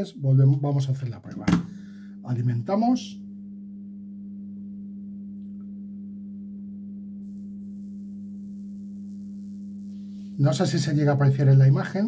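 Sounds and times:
sparks crackling hiss: 7.2s - 12.0s
transformer humming: 7.3s - 11.8s.

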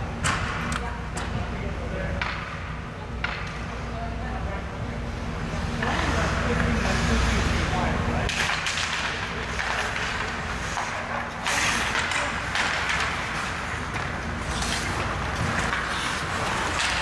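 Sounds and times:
hockey sticks and puck clacking: 2.2s - 2.6s, 3.2s - 3.7s, 8.2s - 17.0s
skate blades scraping on ice: 9.4s - 17.0s.

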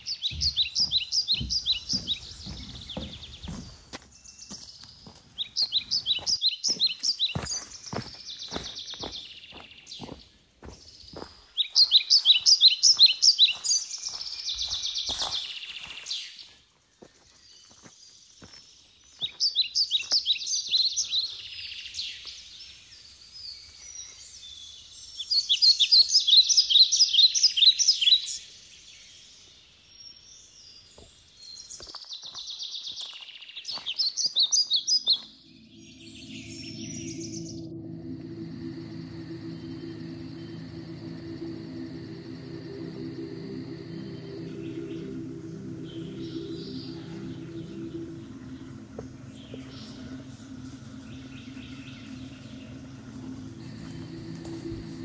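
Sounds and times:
footsteps on sandy trail: 0.0s - 21.4s, 31.0s - 36.5s, 52.1s - 55.0s
songbird chirping: 0.0s - 55.0s.

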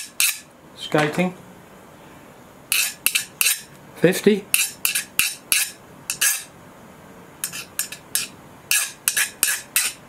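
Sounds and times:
file scraping steel blade edge: 0.0s - 0.5s, 2.7s - 3.7s, 4.5s - 6.5s, 7.4s - 10.0s.

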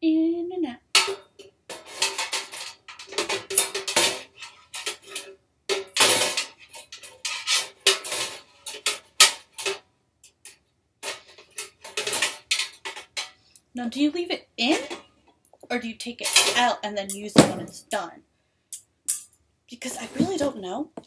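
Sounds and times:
metal accessories clinking: 1.0s - 13.5s, 18.8s - 19.4s.

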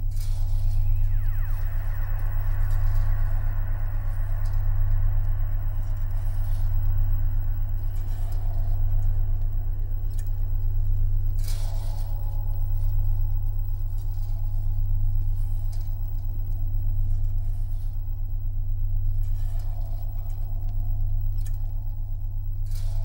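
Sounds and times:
shimmering electronic texture: 0.0s - 16.1s
deep electronic drone hum: 0.0s - 23.0s.

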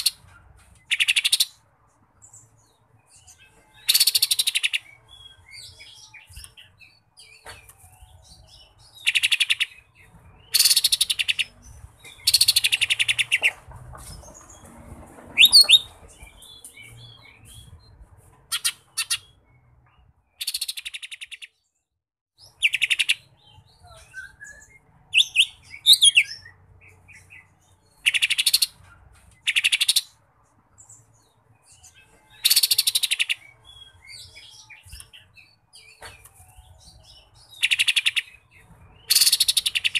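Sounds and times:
bird chattering trills: 18.5s - 19.4s.

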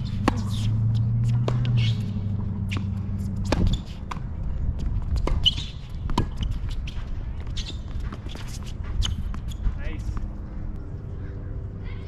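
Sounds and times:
ball bouncing on hard court: 0.0s - 4.3s
tennis ball hit by racket: 0.0s - 4.3s, 5.0s - 6.8s.

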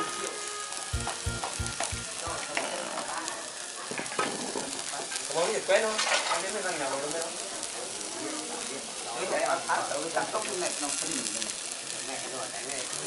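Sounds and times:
fat sizzling and crackling on embers: 0.0s - 13.0s
low thumps: 1.0s - 2.4s.

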